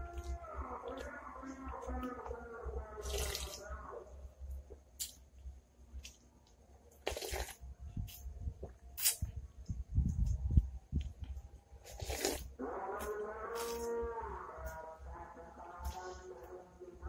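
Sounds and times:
person slurping broth: 7.0s - 7.6s, 11.8s - 12.5s.

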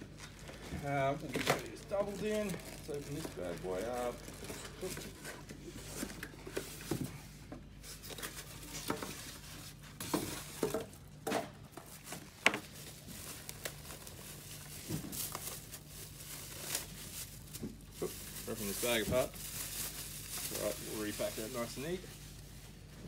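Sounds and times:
plastic bag crinkling: 0.1s - 5.4s, 11.9s - 22.8s
packaging rustling and knocking: 0.4s - 7.2s, 10.0s - 21.4s.

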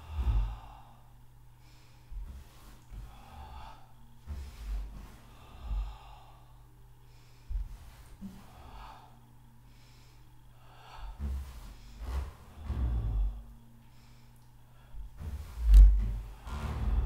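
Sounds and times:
woman breathing slowly: 0.0s - 17.0s.

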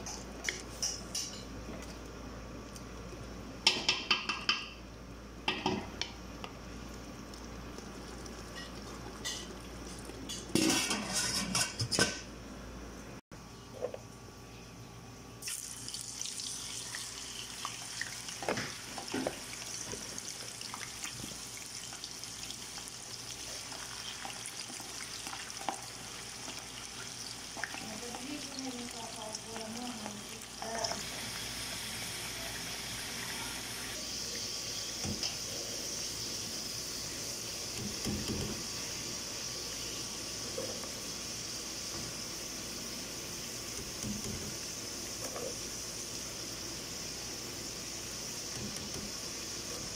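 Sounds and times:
potatoes sizzling in oil: 15.4s - 49.9s.

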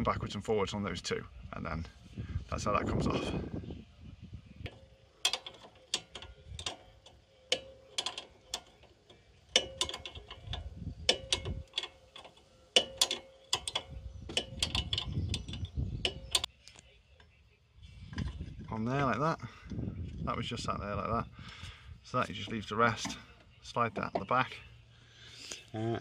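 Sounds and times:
metal tool clicking on nut: 4.7s - 16.5s.

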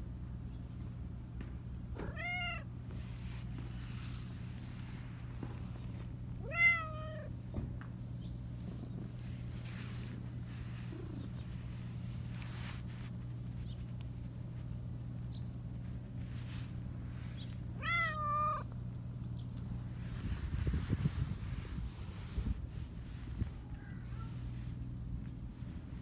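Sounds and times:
steady low hum: 0.0s - 26.0s
cat meowing: 2.0s - 2.7s, 6.4s - 7.3s, 17.8s - 18.7s.

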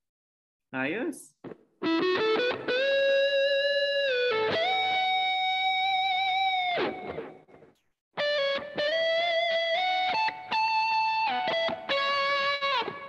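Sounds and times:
electric guitar lead notes: 1.8s - 7.4s, 8.2s - 13.0s.

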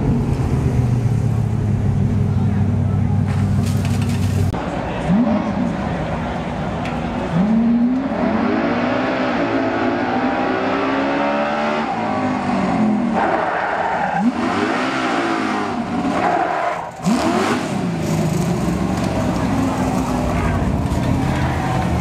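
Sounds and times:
cart engine revving: 7.3s - 22.0s.

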